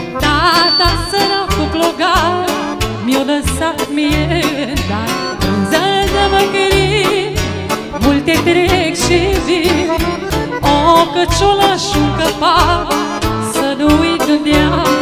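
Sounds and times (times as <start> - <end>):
accordion accompaniment: 0.0 - 15.0
clarinet playing ornamented melody: 0.2 - 2.8.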